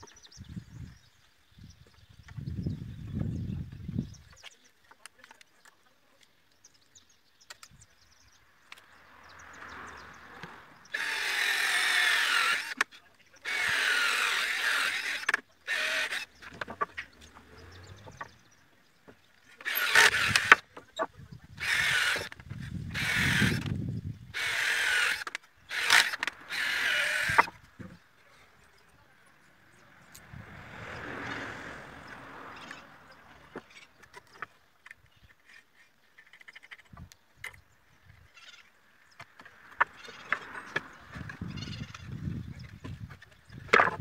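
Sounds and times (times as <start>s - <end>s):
cordless drill boring into wood: 10.9s - 12.8s, 13.4s - 16.8s, 19.6s - 20.6s, 21.6s - 27.6s.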